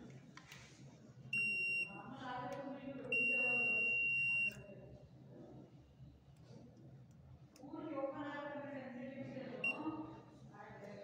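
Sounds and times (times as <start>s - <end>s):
multimeter continuity beeps: 1.4s - 2.0s, 3.1s - 4.6s, 9.6s - 9.9s.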